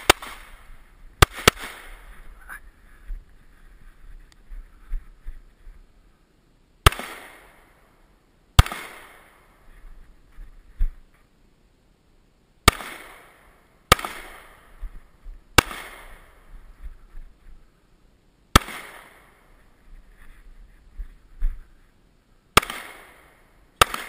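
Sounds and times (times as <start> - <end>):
handgun shots with echo: 23.8 - 24.0.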